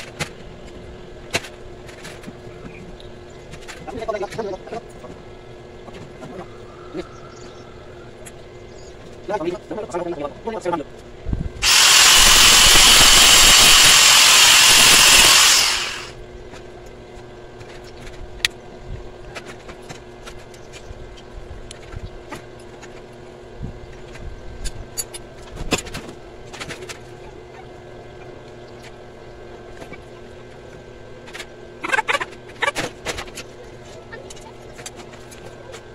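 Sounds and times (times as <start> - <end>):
angle grinder on metal: 11.6 - 16.2.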